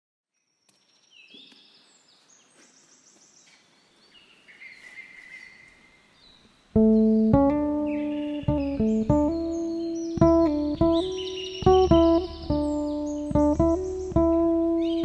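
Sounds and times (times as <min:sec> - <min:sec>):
faint birdsong: 0:00.3 - 0:15.0
guitar chord strummed: 0:06.8 - 0:15.0.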